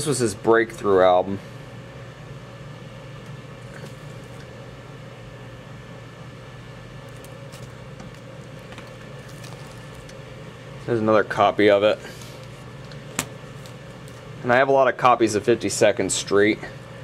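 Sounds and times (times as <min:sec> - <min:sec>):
low background hum: 0:00.0 - 0:17.0
faint ticks of record sleeve handling: 0:03.2 - 0:04.5, 0:07.0 - 0:10.2, 0:12.2 - 0:14.3.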